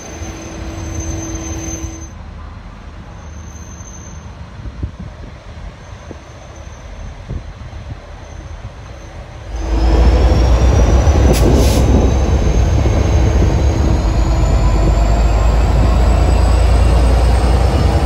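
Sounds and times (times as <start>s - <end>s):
diesel locomotive rumbling: 0.0s - 18.0s
thin rising whine: 9.5s - 18.0s.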